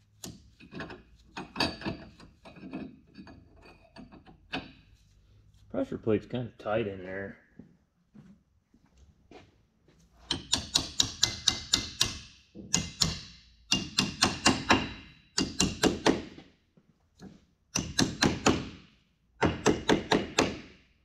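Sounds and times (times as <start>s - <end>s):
hammer tapping on steel: 10.3s - 16.2s.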